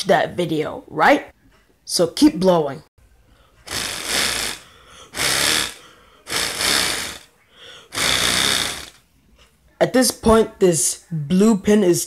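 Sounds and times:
paper pinwheel whirring: 3.6s - 7.3s, 7.9s - 9.0s
person blowing: 3.6s - 9.0s.

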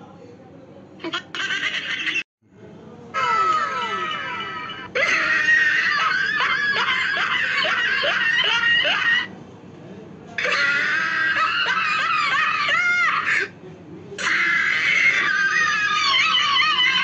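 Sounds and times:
high-pitched squealing laughter: 1.0s - 2.2s, 3.2s - 9.3s, 10.4s - 13.5s, 14.2s - 17.0s.

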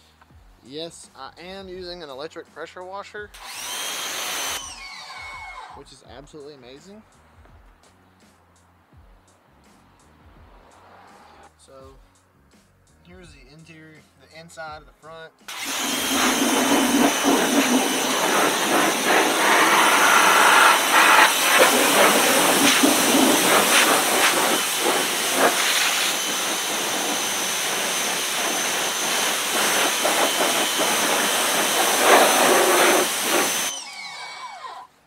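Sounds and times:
pump motor whine: 3.4s - 5.8s, 15.5s - 34.9s
pressure washer spraying water: 15.5s - 33.7s.

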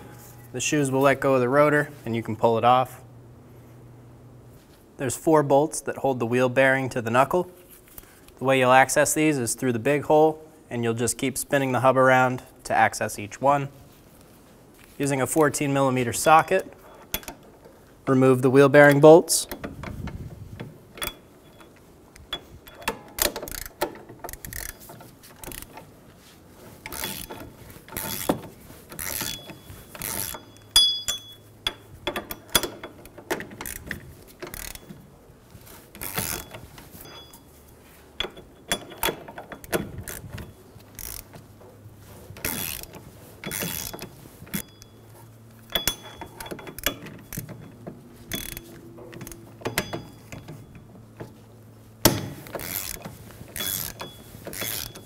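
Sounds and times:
hand ratchet clicking: 18.8s - 25.9s, 26.8s - 35.0s, 35.7s - 37.4s, 38.2s - 41.5s, 42.4s - 44.9s, 45.6s - 51.3s, 52.0s - 55.0s.

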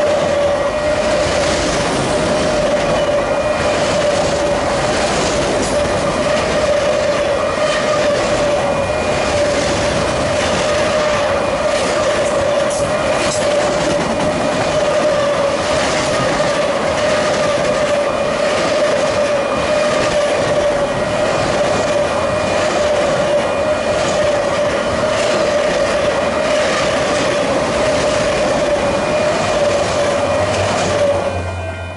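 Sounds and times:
freight cars rumbling on rails: 0.0s - 31.9s
clacks over rail joints: 11.7s - 20.8s.

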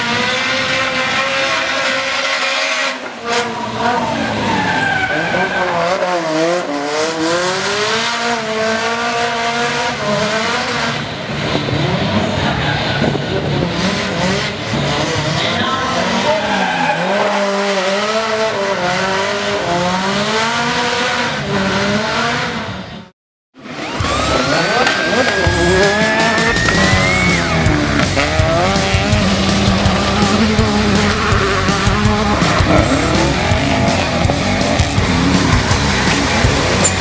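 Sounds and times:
another car engine revving: 0.0s - 37.0s
car engine at high revs: 0.0s - 37.0s
tyres squealing: 24.1s - 28.9s.

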